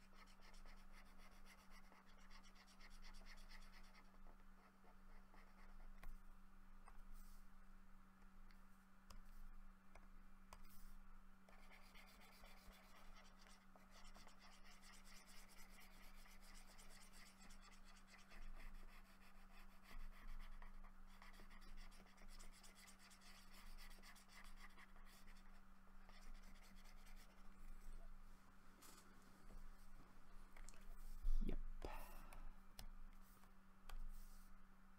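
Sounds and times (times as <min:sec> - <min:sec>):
low electrical hum: 0:00.0 - 0:34.9
stylus scratching graphics tablet: 0:11.6 - 0:27.5.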